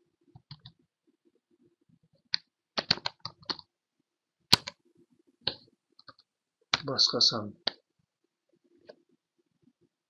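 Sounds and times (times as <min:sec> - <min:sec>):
computer keyboard keystrokes: 0:00.4 - 0:00.8, 0:02.8 - 0:03.7, 0:04.5 - 0:04.8.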